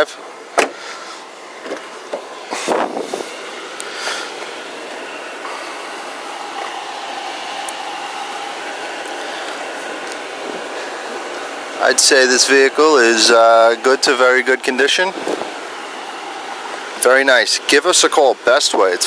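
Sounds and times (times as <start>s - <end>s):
air conditioning whirring hum: 0.0s - 19.0s
car door latch clicking: 0.6s - 0.8s.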